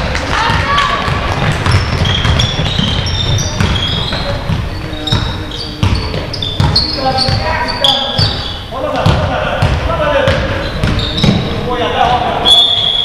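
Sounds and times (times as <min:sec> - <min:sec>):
basketball bouncing: 0:00.0 - 0:12.2
players calling: 0:00.0 - 0:13.0
sneakers squeaking on floor: 0:00.0 - 0:13.0.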